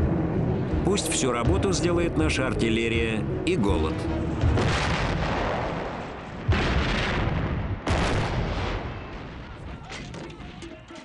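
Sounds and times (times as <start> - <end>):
artillery guns firing: 4.5 - 11.0.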